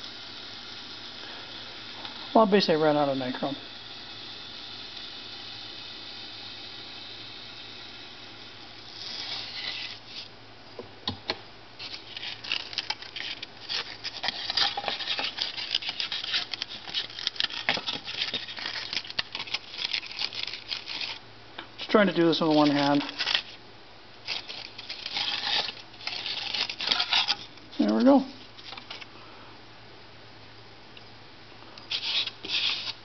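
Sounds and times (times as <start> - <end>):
hot wire hissing through foam: 0.0 - 23.6, 24.2 - 29.1, 31.8 - 33.0
foam crackling and scratching: 8.8 - 10.3, 11.8 - 21.2, 21.8 - 23.6, 24.2 - 27.8, 31.9 - 33.0.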